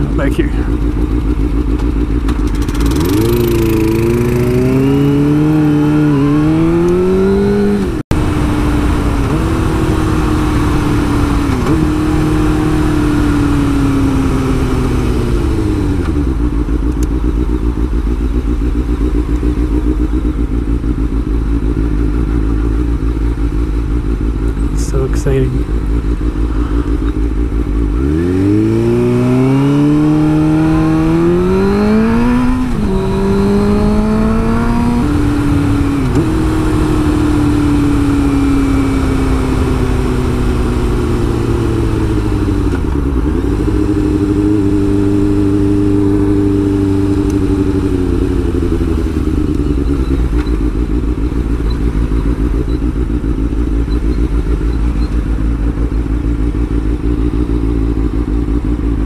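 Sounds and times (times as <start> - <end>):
motorcycle engine accelerating: 0.0 - 59.0
low wind rumble on microphone: 25.6 - 59.0.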